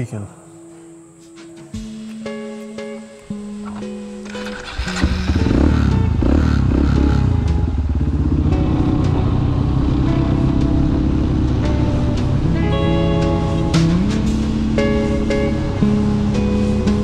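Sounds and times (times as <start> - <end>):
guitar music: 0.0 - 17.0
motorcycle engine revving: 3.7 - 17.0.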